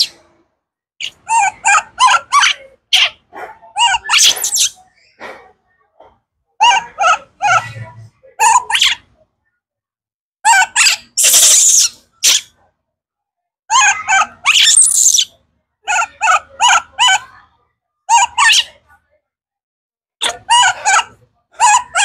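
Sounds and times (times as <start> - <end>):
baby monkey harsh screams: 1.0 - 3.2, 3.8 - 4.8, 6.6 - 7.7, 8.4 - 9.0, 10.5 - 12.6, 13.7 - 15.3, 15.9 - 17.3, 18.1 - 18.8
baby monkey squealing calls: 1.0 - 3.2, 3.8 - 4.8, 6.6 - 7.7, 8.4 - 9.0, 10.5 - 12.6, 13.7 - 15.3, 15.9 - 17.3, 18.1 - 18.8, 20.2 - 22.0.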